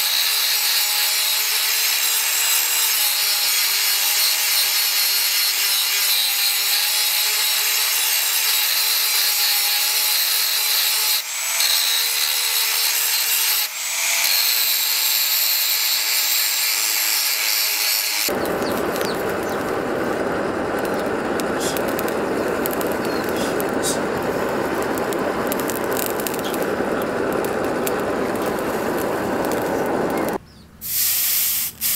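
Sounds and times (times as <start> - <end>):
angle grinder grinding steel: 0.0 - 30.4
forge fire rushing and crackling: 18.3 - 30.4.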